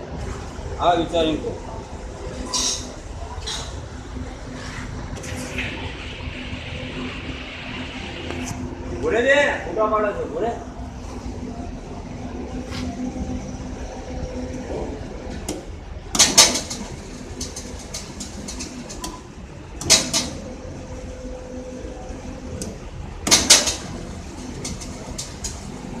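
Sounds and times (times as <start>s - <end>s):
belt conveyor humming: 0.0s - 26.0s.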